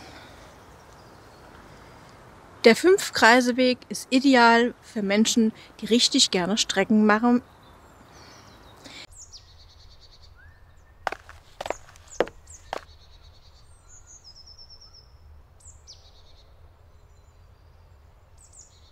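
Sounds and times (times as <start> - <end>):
songbirds chirping: 0.0 - 18.9.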